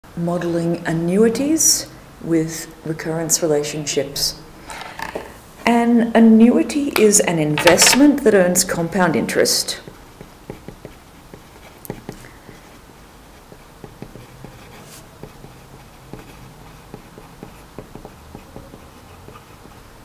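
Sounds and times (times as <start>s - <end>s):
pen scratching on paper: 9.8s - 19.9s.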